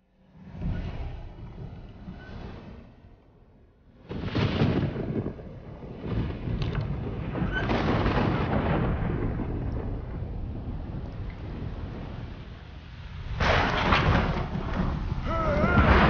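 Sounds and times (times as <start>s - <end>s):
deep thunder rumble: 3.9s - 16.0s
thunder crack: 4.0s - 16.0s.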